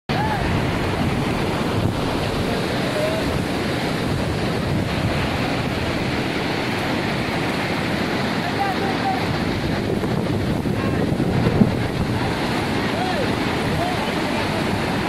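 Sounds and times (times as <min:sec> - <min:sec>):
river rushing over boulders: 0:00.1 - 0:15.0
wind buffeting microphone: 0:00.1 - 0:15.0.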